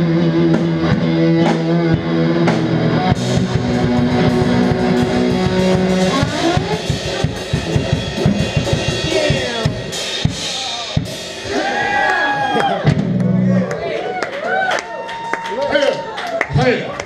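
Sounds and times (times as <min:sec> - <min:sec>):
bass guitar: 0:00.0 - 0:15.1
electric guitar: 0:00.0 - 0:15.3
drum kit hits: 0:00.6 - 0:13.6.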